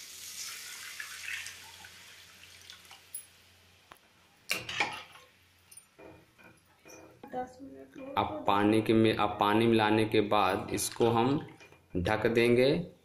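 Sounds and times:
water sizzling in a hot pan: 0.0 - 3.5.

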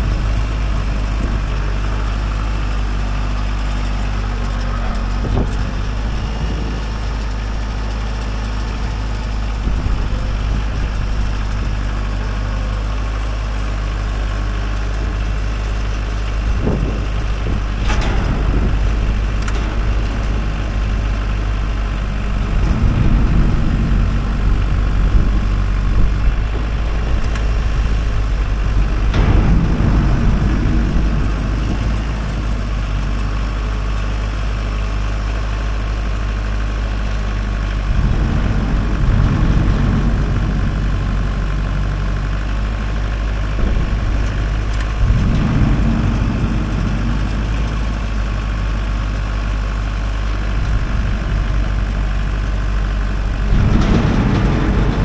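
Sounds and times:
tractor diesel engine running: 0.0 - 55.0
sharp knocks: 14.0 - 34.9.

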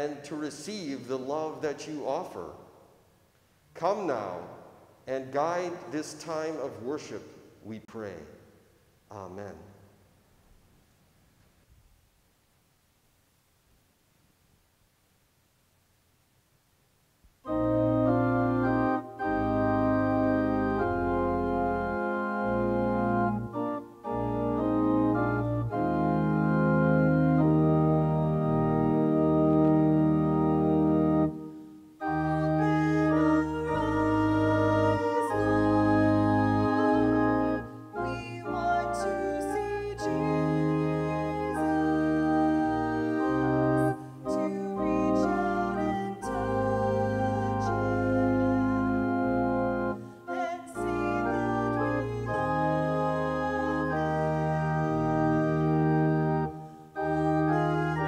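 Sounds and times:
church organ playing chords: 17.5 - 58.0.

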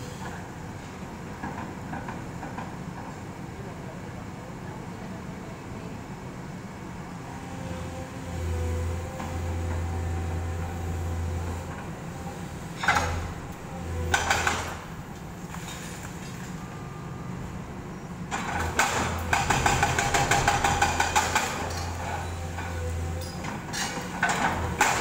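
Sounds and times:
excavator diesel engine running: 7.2 - 25.0.

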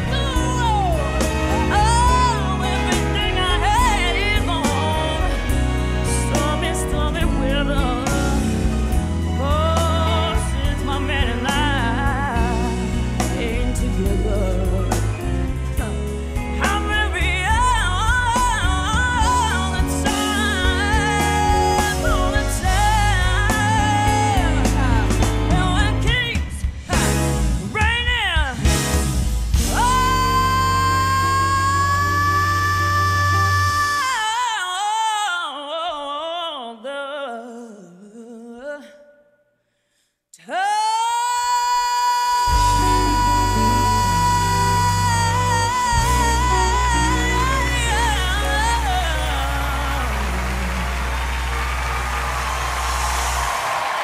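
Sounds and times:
instrumental accompaniment: 0.0 - 27.8
woman singing with vibrato: 0.0 - 28.7, 29.6 - 39.4, 40.4 - 50.9.

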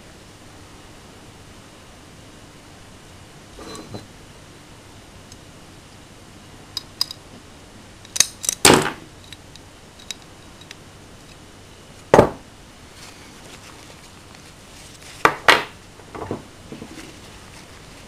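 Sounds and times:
metal pistol parts clicking: 8.0 - 11.4
part knocking on wooden table: 12.2 - 12.4.

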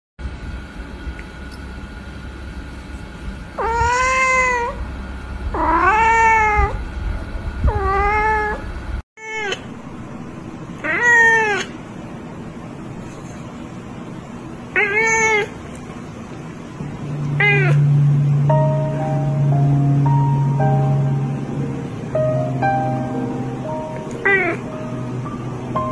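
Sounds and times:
cats meowing: 3.6 - 4.8, 5.6 - 6.8, 7.7 - 8.6, 10.8 - 11.7, 14.7 - 15.7, 17.2 - 19.6, 22.8 - 25.0.

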